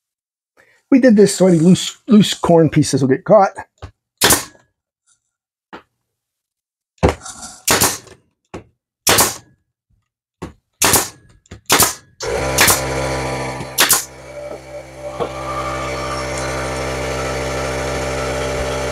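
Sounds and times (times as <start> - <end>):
nail gun firing: 4.2 - 4.6, 7.6 - 8.2, 9.0 - 9.5, 10.8 - 14.6
air compressor motor running: 12.2 - 18.9.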